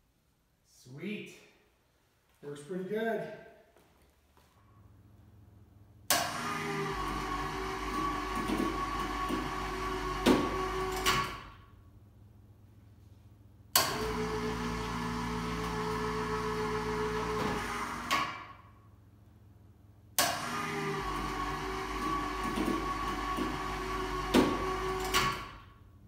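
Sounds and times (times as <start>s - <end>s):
electric hoist motor humming: 6.1s - 11.5s, 13.7s - 18.4s, 20.2s - 25.7s.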